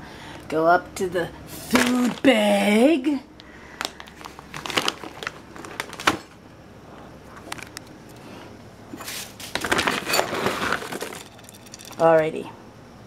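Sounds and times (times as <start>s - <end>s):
plastic bag crinkling: 3.7s - 6.4s, 9.0s - 12.1s.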